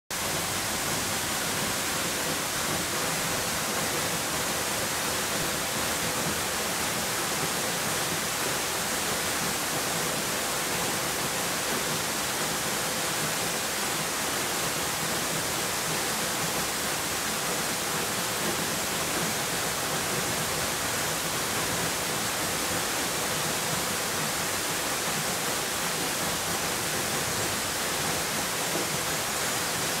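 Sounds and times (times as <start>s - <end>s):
waterfall rushing: 0.1s - 30.0s.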